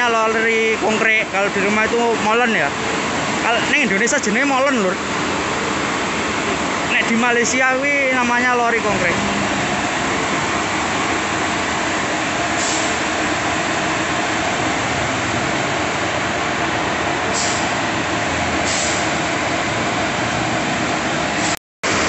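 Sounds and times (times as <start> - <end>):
truck engine running: 0.0 - 22.0
short high hisses: 12.6 - 13.0, 17.3 - 17.8, 18.6 - 19.1.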